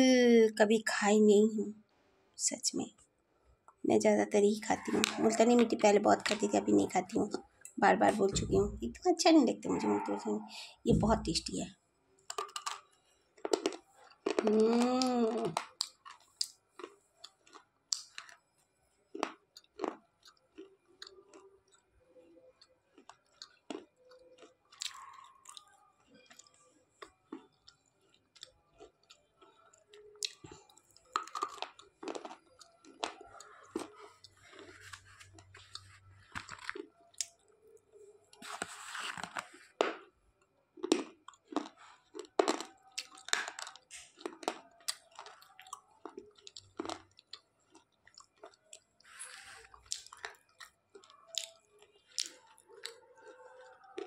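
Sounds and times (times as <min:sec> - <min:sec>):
slate pencil crunching: 0:31.1 - 0:36.9, 0:38.3 - 0:40.0.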